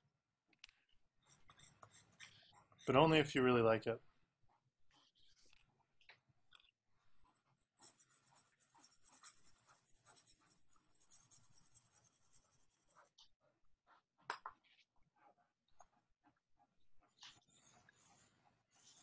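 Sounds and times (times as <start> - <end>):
drawing stick scratching paper: 1.2 - 3.3, 7.0 - 13.3, 17.0 - 19.0.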